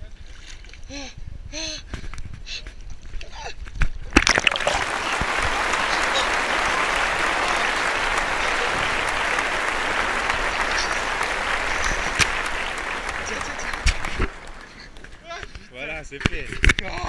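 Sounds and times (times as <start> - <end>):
water splashing and churning: 4.2 - 6.3.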